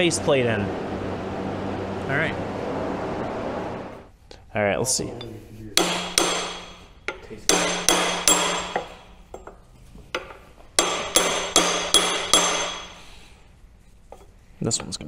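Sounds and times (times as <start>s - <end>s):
metallic ringing: 5.2s - 9.6s, 10.2s - 13.2s
hammer striking metal punch: 5.8s - 9.5s, 10.1s - 13.0s.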